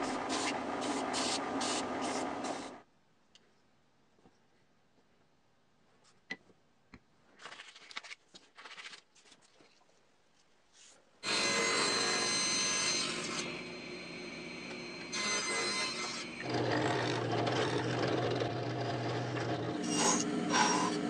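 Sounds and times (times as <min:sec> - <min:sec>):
paper rustling: 0:07.4 - 0:11.0
table saw running: 0:11.2 - 0:21.0.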